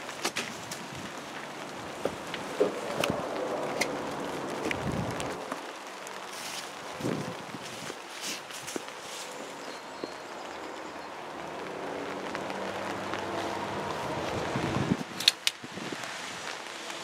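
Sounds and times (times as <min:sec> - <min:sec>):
steady rain: 0:00.0 - 0:17.0
vehicle passing on wet road: 0:00.0 - 0:17.0
sharp clicks: 0:15.1 - 0:15.6.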